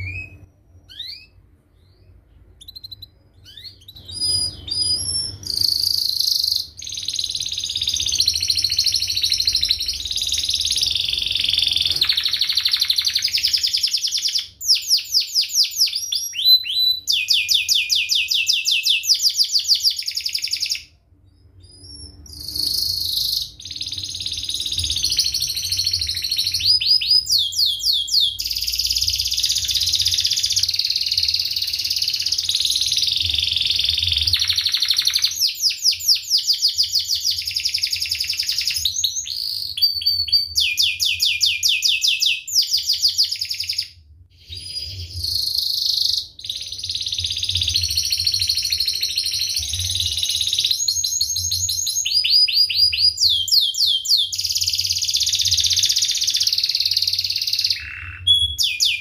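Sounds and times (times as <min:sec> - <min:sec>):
faint low hum: 0:00.0 - 0:13.4
canary singing trills: 0:00.0 - 0:59.0.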